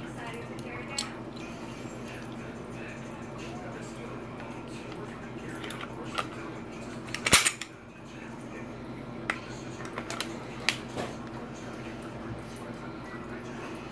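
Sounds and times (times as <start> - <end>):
pistol parts clicking: 7.2 - 7.7.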